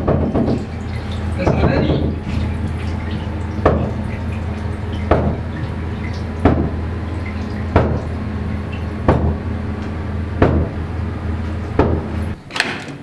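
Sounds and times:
low hum: 0:00.0 - 0:12.4
water dripping: 0:00.0 - 0:12.4.

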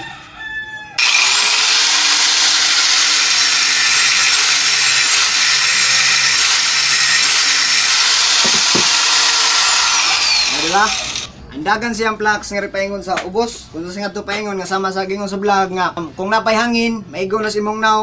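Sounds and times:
angle grinder grinding steel pipe: 0:01.0 - 0:11.3.

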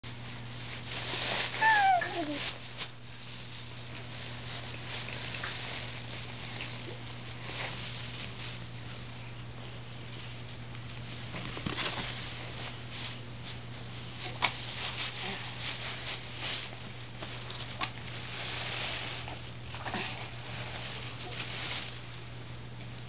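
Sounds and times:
steady low hum: 0:00.0 - 0:23.0
basket grass rustling: 0:00.1 - 0:22.3.

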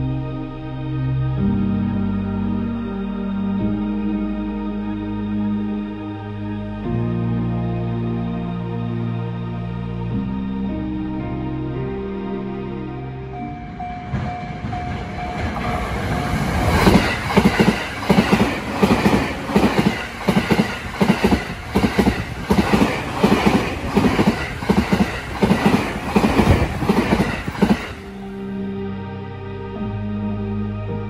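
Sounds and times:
train rumble passing: 0:06.4 - 0:29.4
wheels clickety-clack on rail joints: 0:13.5 - 0:28.3.

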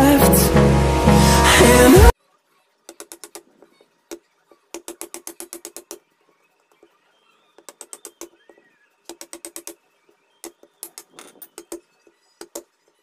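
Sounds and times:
hammer tapping chisel into wood: 0:09.1 - 0:09.8.

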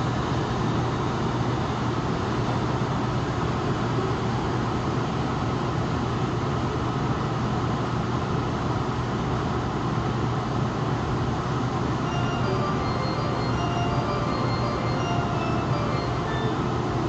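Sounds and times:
train car ventilation drone: 0:00.0 - 0:17.0
faint high whining tones: 0:12.0 - 0:17.0.

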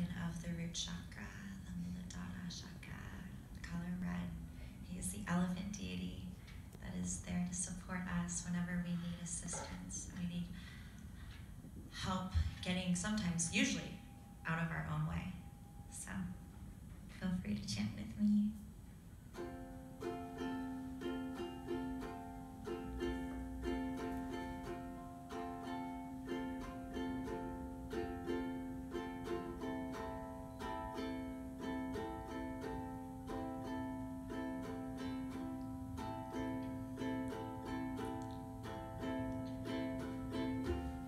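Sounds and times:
ukulele strumming: 0:19.3 - 0:41.0.

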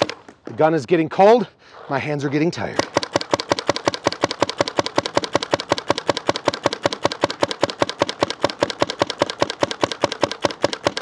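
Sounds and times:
paintball marker firing rapidly: 0:00.0 - 0:00.2, 0:02.8 - 0:11.0.

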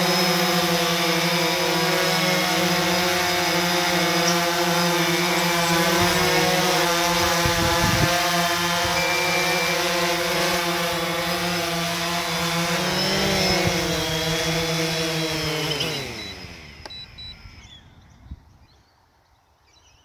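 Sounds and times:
drone propellers whirring: 0:00.0 - 0:18.7.

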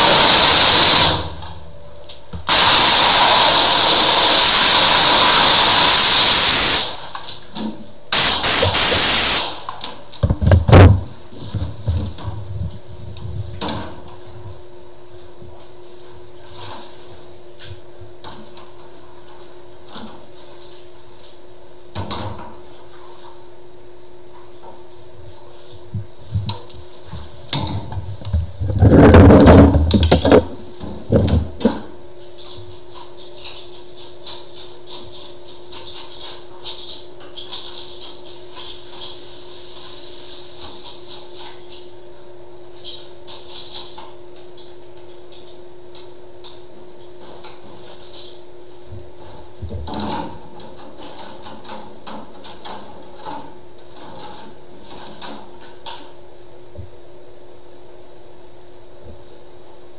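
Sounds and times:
high-pressure water jet hissing: 0:00.0 - 0:01.3, 0:02.5 - 0:07.1, 0:08.1 - 0:09.6
knocks and clatter: 0:27.5 - 0:31.9.

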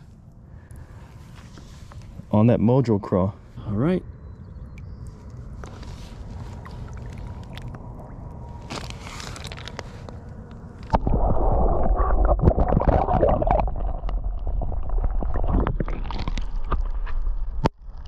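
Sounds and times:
water lapping against camera: 0:05.1 - 0:08.0
muffled underwater gurgling: 0:10.9 - 0:16.4.

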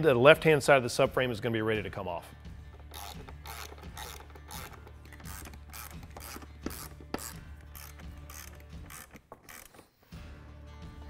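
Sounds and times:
hand ratchet ratcheting: 0:02.7 - 0:10.1.

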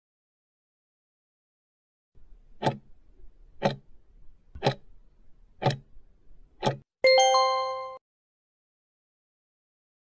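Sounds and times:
clock ticking: 0:02.5 - 0:04.0, 0:04.6 - 0:04.9, 0:05.6 - 0:05.9, 0:06.6 - 0:06.8.

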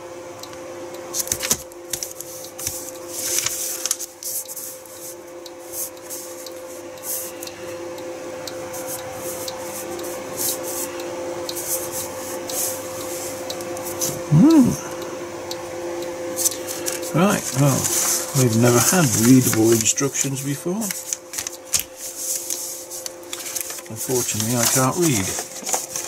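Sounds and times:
background hum: 0:00.0 - 0:26.0
paper rustling under hands: 0:01.2 - 0:06.3, 0:16.4 - 0:26.0.

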